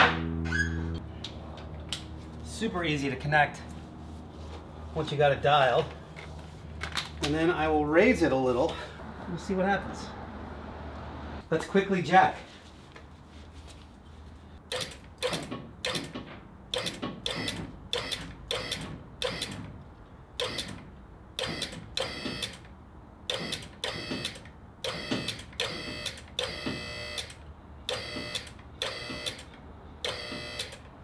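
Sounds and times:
hydraulic pump motor running: 23.3 - 30.8.

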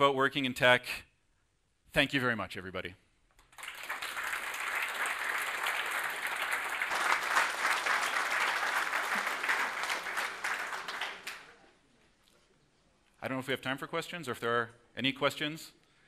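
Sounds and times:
audience applauding: 3.4 - 11.7.

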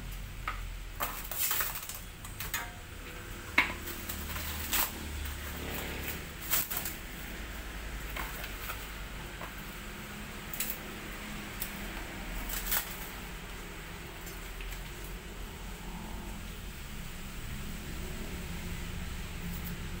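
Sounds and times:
steady low hum: 0.0 - 20.0
plastic wrapping crinkling: 1.0 - 2.8, 3.8 - 7.4, 12.4 - 13.3.

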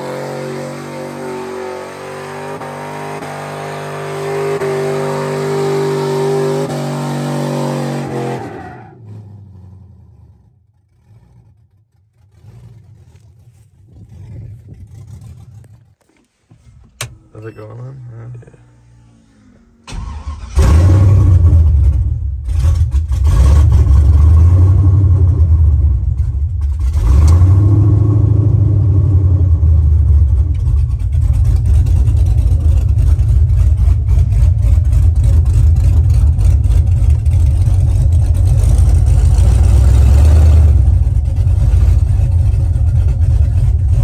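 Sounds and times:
pickup engine running loud: 16.9 - 44.0.

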